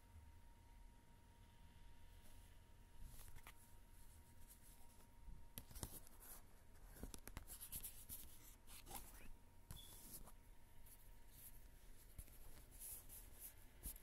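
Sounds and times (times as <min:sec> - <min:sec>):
photo cards rustling and scraping: 0:03.1 - 0:10.4.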